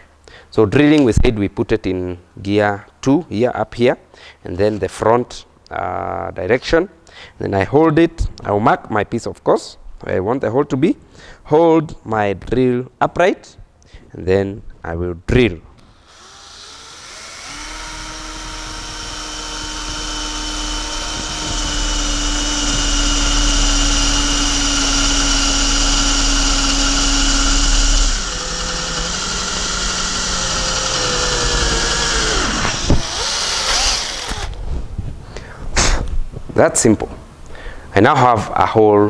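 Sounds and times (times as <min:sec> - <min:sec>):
drill boring through metal: 0:15.8 - 0:34.6.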